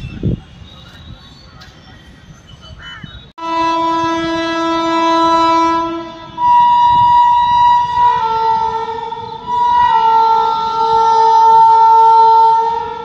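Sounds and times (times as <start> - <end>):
locomotive horn blasts: 3.4 - 13.0.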